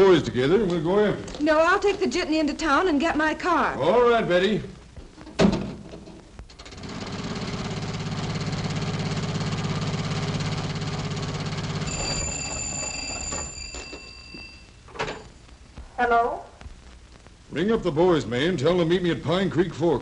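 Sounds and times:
telephone bell ringing: 11.7s - 15.2s.

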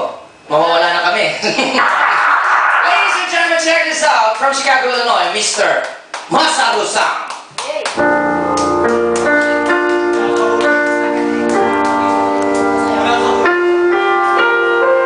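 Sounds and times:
slow piano music: 8.0s - 15.0s.

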